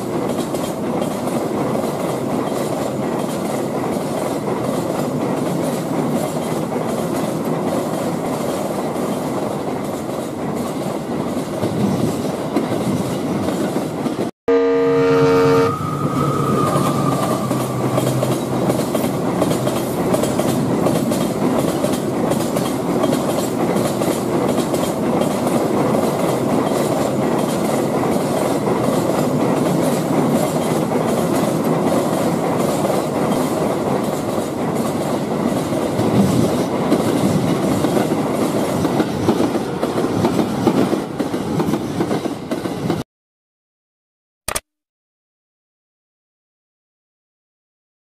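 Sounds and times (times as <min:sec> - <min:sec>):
train wheels rumbling on rails: 0:00.0 - 0:14.3, 0:15.7 - 0:43.0
short click: 0:44.5 - 0:44.7.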